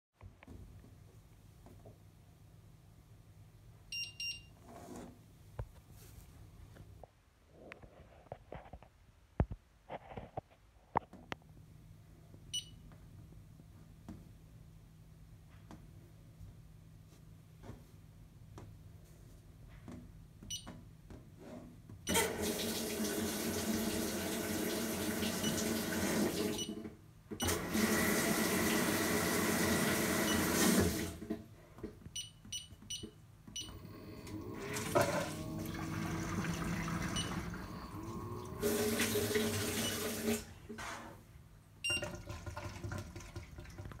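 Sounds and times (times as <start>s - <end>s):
water rushing into washing machine: 22.1s - 26.8s, 27.4s - 31.4s, 34.1s - 40.5s, 41.9s - 44.0s.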